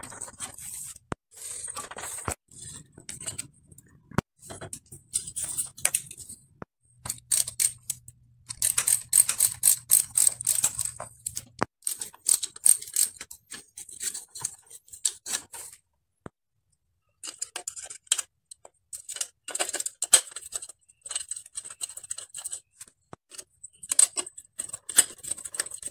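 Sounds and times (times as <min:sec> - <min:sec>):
metal bike parts and tools clinking: 0:04.5 - 0:06.3, 0:07.0 - 0:15.2.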